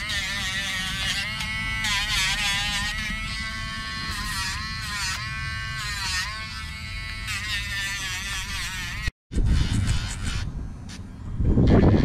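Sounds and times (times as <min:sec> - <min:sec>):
nail grinder whining: 0:00.0 - 0:09.1.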